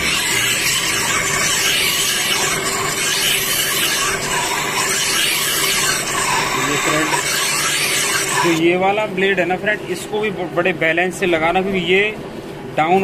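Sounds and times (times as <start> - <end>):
motor humming: 0.0 - 8.6
blade scraping on grinding wheel: 0.0 - 8.7.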